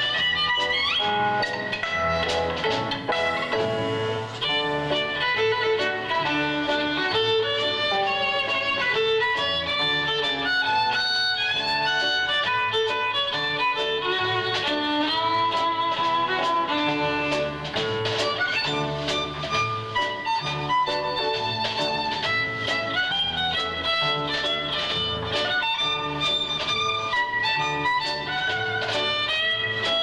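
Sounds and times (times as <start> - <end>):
double bass accompanying: 0.0 - 30.0
violin playing fast jazz melody: 0.0 - 30.0.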